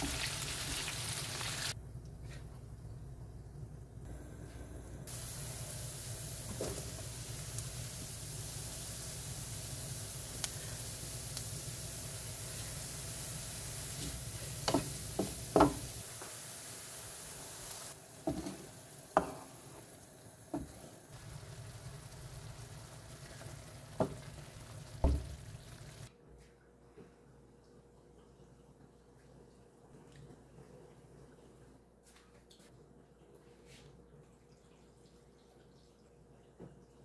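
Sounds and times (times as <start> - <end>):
food sizzling in a frying pan: 0.0 - 1.8, 5.1 - 26.1
quiet simmer: 1.8 - 31.8
utensils knocking against pan: 14.0 - 15.9.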